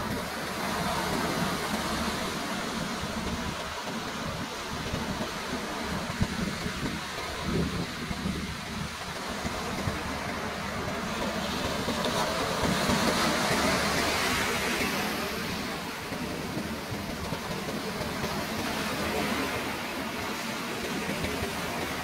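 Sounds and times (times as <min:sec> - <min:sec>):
ocean waves breaking: 0:00.0 - 0:22.0.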